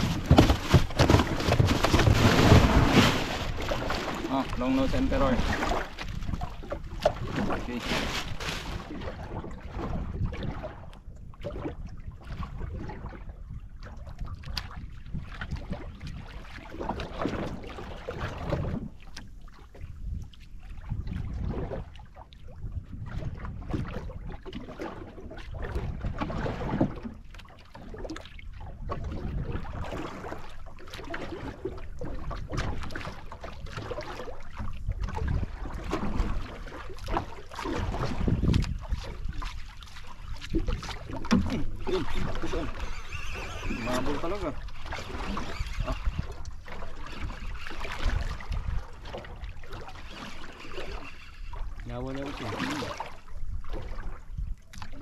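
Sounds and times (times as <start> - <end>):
wind buffeting microphone: 0.0 - 16.4, 19.7 - 24.4, 34.6 - 36.5, 37.7 - 39.6, 40.3 - 49.9
water slapping against boat hull: 0.0 - 55.0.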